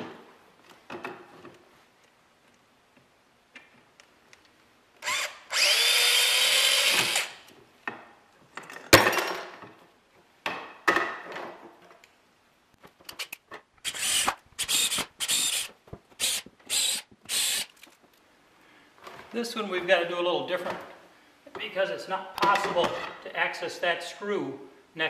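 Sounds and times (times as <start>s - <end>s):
electric drill driving screws: 5.0s - 7.4s, 13.8s - 17.8s.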